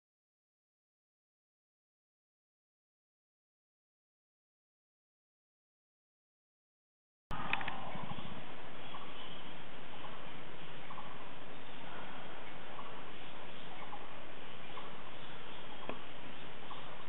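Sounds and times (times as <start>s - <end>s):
forest ambience hiss: 7.3s - 17.0s
cluster of clicks: 7.4s - 7.9s, 15.8s - 16.1s.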